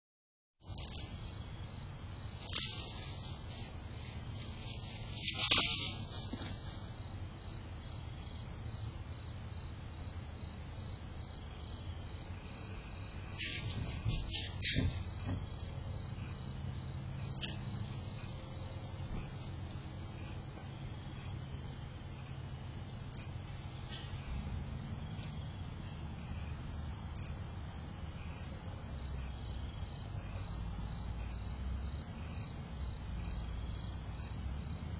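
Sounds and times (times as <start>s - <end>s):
crickets chirping: 0.6s - 34.9s
steady background noise: 0.6s - 34.9s
steady low rumble: 0.6s - 34.9s
short rustle: 2.4s - 7.0s.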